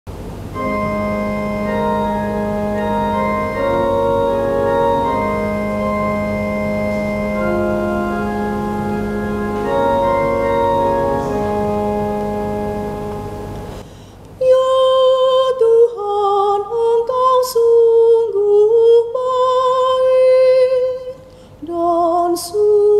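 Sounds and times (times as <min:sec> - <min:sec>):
organ playing sustained chords: 0:00.1 - 0:13.8.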